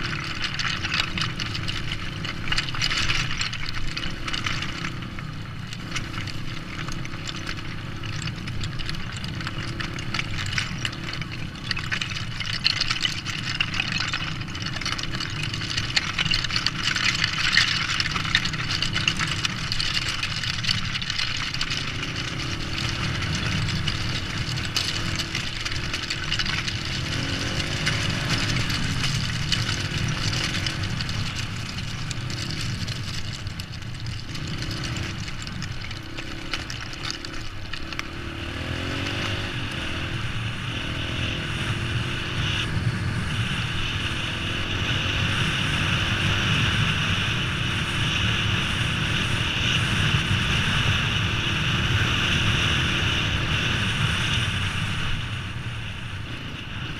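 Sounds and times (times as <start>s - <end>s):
dirt bike engine revving: 3.9s - 33.4s.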